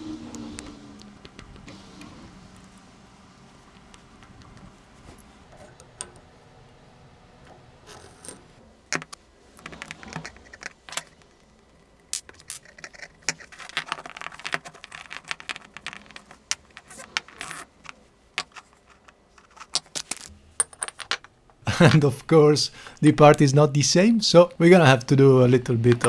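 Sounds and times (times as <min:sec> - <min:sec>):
metal parts clinking and scraping: 0:07.9 - 0:22.0.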